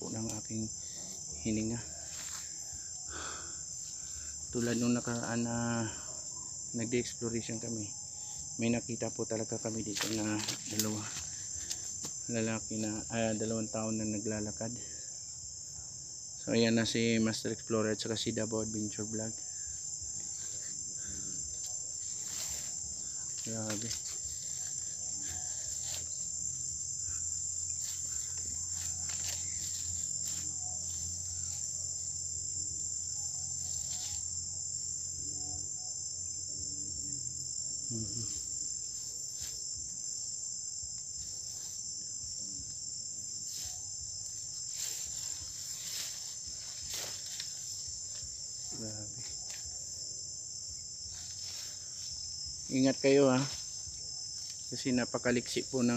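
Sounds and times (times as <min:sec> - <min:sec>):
rustles in undergrowth: 0:00.0 - 0:05.8, 0:09.5 - 0:13.5, 0:19.7 - 0:32.2, 0:33.4 - 0:34.4, 0:41.1 - 0:42.0, 0:42.8 - 0:55.9
insect chorus trilling: 0:00.0 - 0:55.9
footsteps through undergrowth: 0:01.1 - 0:02.6, 0:09.6 - 0:12.9, 0:19.9 - 0:31.7, 0:43.0 - 0:52.8.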